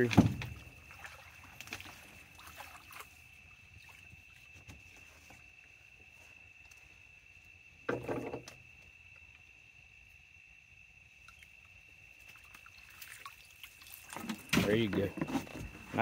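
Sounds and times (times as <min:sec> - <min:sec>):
small water sounds: 0:00.0 - 0:06.9, 0:10.8 - 0:16.0
fish splashing at water surface: 0:12.2 - 0:14.6.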